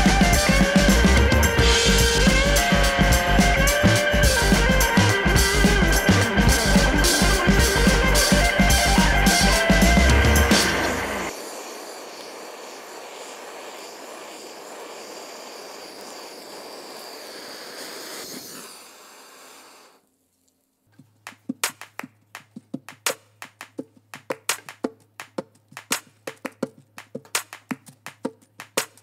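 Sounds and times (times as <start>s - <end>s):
blowtorch hissing: 0.0s - 20.0s.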